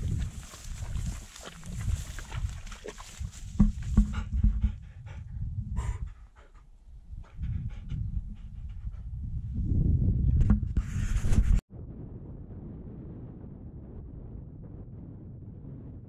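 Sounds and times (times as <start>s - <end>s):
dog splashing through water: 0.0s - 4.1s
low rumble: 0.0s - 10.5s, 11.7s - 16.0s
dog panting: 0.5s - 9.1s.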